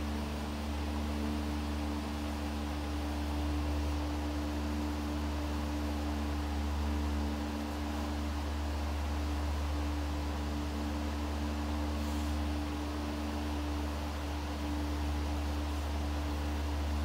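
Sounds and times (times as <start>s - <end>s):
steady low hum: 0.0s - 17.0s
even hiss: 3.6s - 17.0s.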